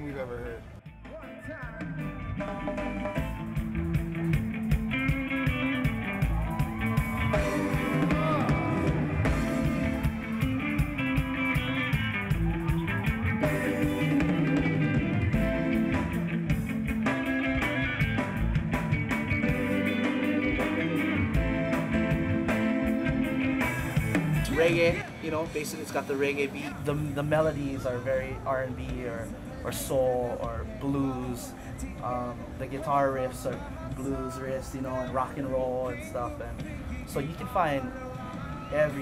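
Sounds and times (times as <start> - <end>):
reggae band music: 0.0 - 39.0
electric guitar: 1.6 - 26.9.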